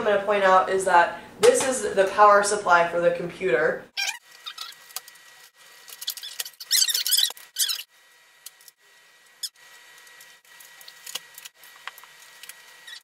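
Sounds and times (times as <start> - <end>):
metal parts squeaking and scraping: 4.0 - 5.2, 5.8 - 7.9, 9.3 - 9.6, 12.6 - 13.0.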